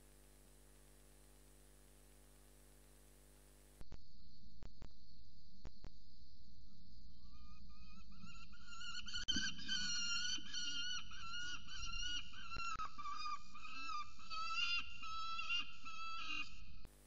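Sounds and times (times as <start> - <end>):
falcon calling: 7.4 - 16.9.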